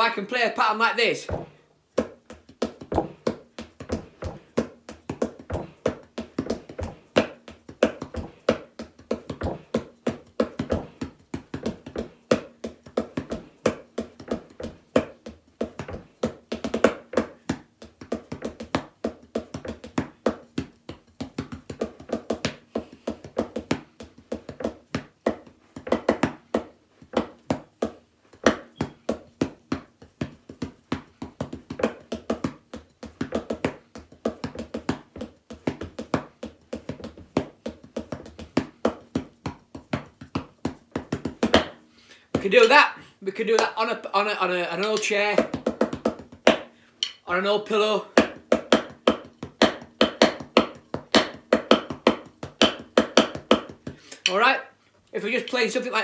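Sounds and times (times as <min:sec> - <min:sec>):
drumsticks clicking on chair: 0:47.0 - 0:47.2.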